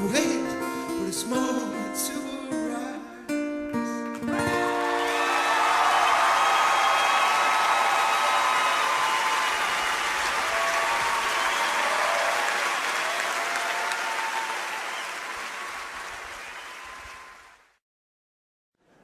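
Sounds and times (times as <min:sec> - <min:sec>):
audience applauding: 0:04.5 - 0:17.8.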